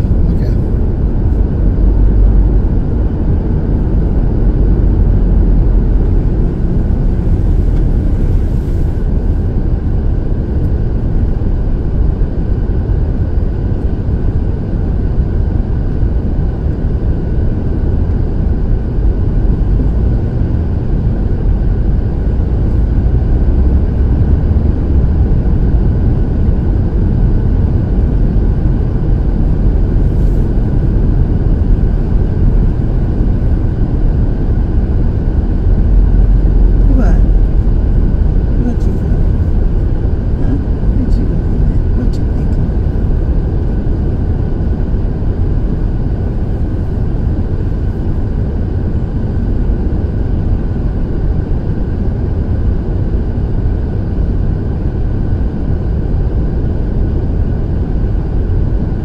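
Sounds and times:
car driving on snowy road: 0:00.0 - 0:11.3, 0:19.3 - 0:33.8.

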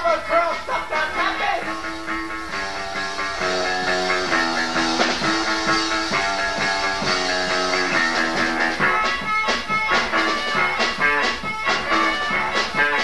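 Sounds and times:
guitar chords: 0:00.0 - 0:13.0
live rock band playing: 0:00.0 - 0:13.0.

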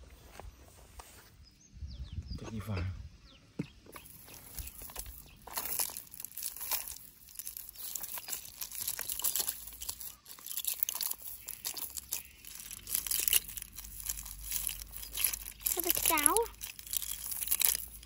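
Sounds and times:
net rustling and clicking: 0:04.0 - 0:18.0.

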